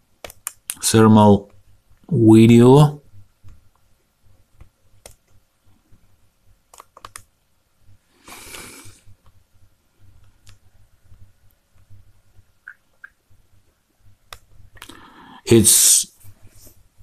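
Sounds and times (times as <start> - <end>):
laptop clicks: 6.7 - 7.3.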